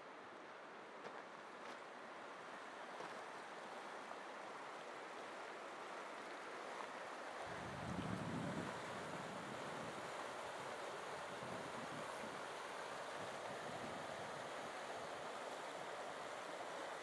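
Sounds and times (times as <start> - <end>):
river rushing over rocks: 0.1 - 17.0
wind buffeting microphone: 7.5 - 10.0.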